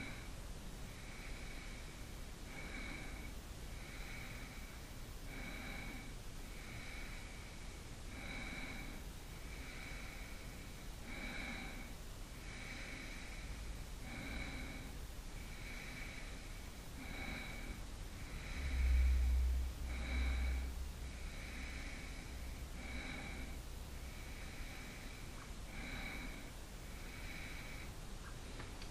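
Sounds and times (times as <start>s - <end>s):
low rumble: 17.6s - 24.3s
person breathing with whistle: 17.7s - 22.8s.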